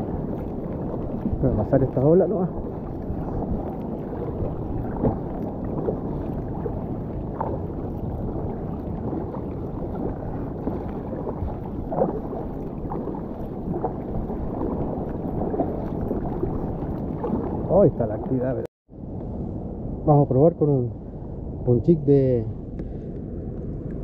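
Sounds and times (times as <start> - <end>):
paddle strokes: 0.0 - 18.7
water splashing against kayak hull: 0.0 - 18.7
low rumble: 0.0 - 24.0.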